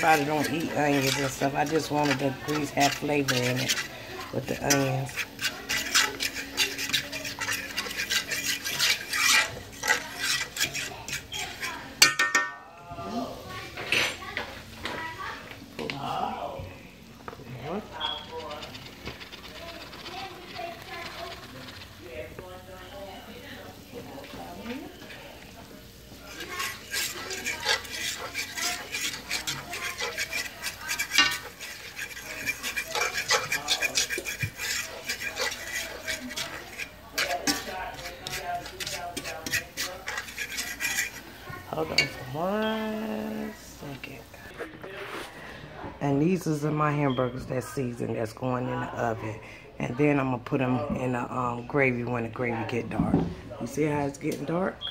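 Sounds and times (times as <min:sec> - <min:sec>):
roux bubbling: 0:00.0 - 0:12.1, 0:17.1 - 0:44.6
metal utensil scraping skillet: 0:00.0 - 0:12.6, 0:17.4 - 0:45.3.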